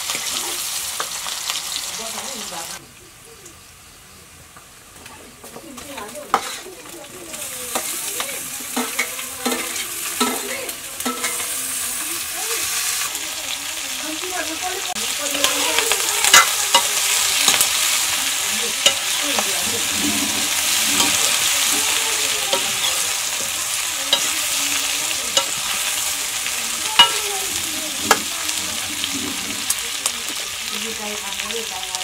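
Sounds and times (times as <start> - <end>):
frying in hot oil sizzle: 0.0 - 32.0
metal ladle scraping a wok: 6.3 - 6.8, 7.7 - 13.2, 15.5 - 29.8.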